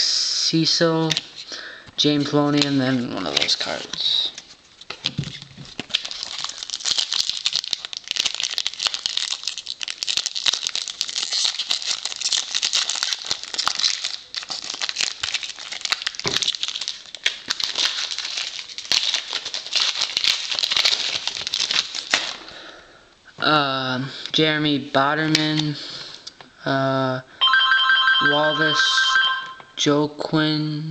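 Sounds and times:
foil wrapper crinkling: 0:02.6 - 0:22.6.

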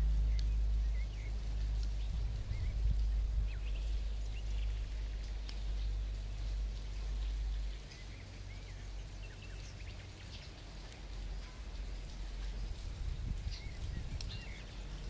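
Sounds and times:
low microphone rumble: 0:00.0 - 0:07.7, 0:12.5 - 0:15.0
small birds chirping: 0:00.2 - 0:15.0.

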